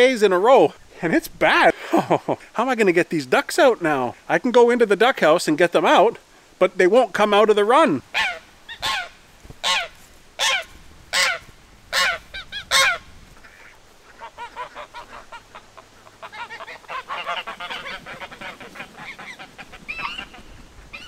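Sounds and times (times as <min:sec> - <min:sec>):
flock of geese calling: 0:08.1 - 0:21.0
geese honking: 0:08.1 - 0:21.0.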